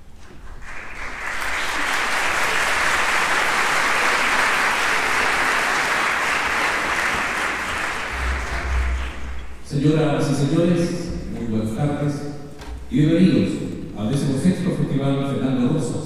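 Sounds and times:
audience applauding: 0.4 - 9.6.

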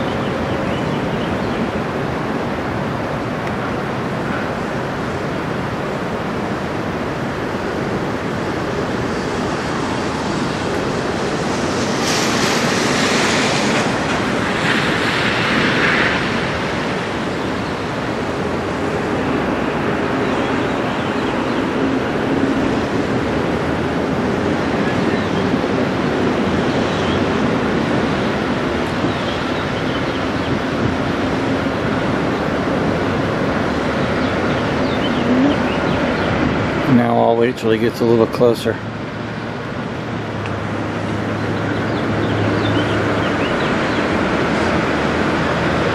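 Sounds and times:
waves washing against shore: 0.0 - 45.9
wind buffeting microphone: 0.0 - 45.9
hissing rush: 8.2 - 39.0.

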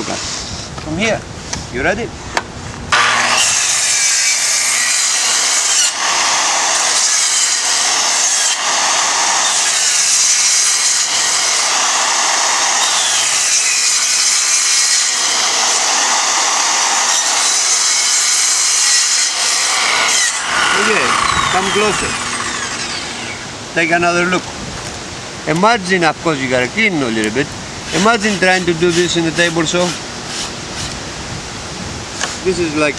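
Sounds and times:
circular saw cutting wood: 2.9 - 23.6, 27.9 - 31.0.

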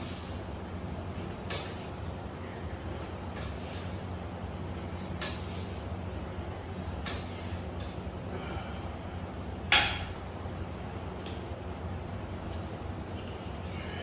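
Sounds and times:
steady low hum: 0.0 - 14.0
light clicks from bar and plates: 1.2 - 2.0, 4.9 - 5.6, 6.7 - 8.0, 9.7 - 10.2.

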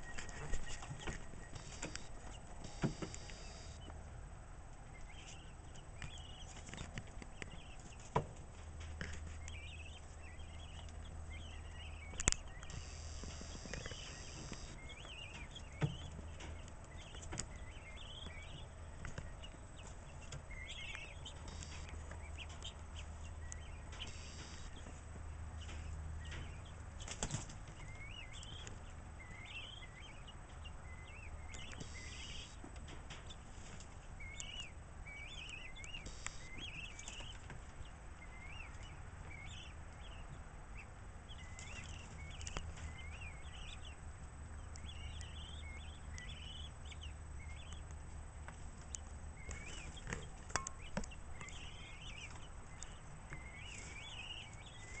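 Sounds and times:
guinea fowl calling: 0.0 - 3.9, 9.3 - 19.6, 20.5 - 24.9.

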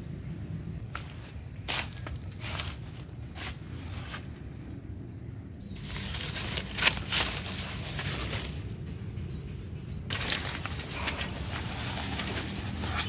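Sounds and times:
dry leaves rustling and crackling: 5.8 - 8.9, 10.1 - 13.0.

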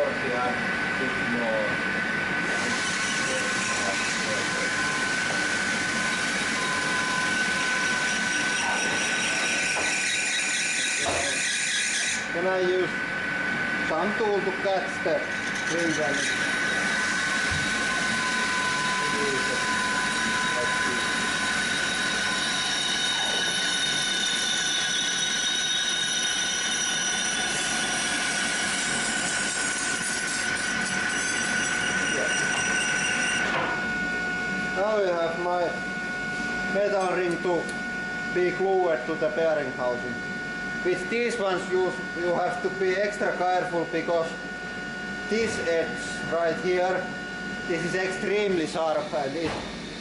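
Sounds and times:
metal lathe running: 1.8 - 50.0
high tone from cutting tool: 2.4 - 12.6, 15.2 - 50.0
high-pitched whine: 3.0 - 11.4, 15.1 - 29.0.

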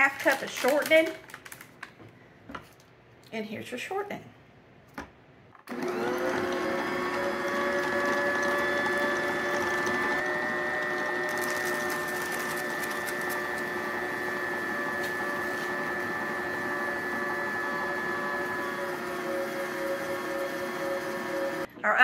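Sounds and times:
electric stand mixer running: 5.7 - 21.7
sugar pouring patter: 10.9 - 13.9.

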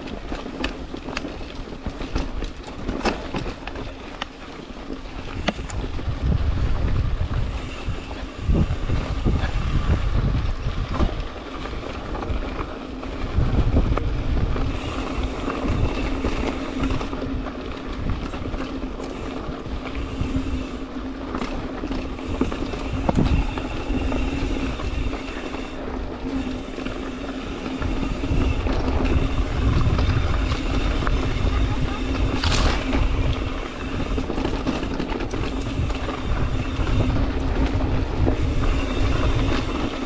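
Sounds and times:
bike knocks and rattles: 0.0 - 6.1
bike tyres rolling: 0.0 - 40.0
wind rumbling on microphone: 0.0 - 40.0.

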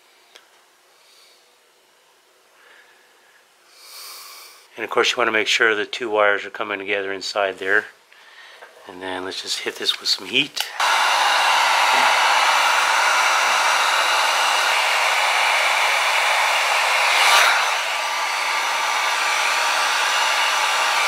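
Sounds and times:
heat gun blowing: 10.6 - 21.0.

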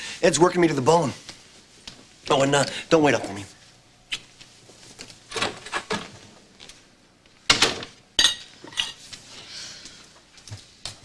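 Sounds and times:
dishes and cutlery clinking: 8.2 - 9.0.

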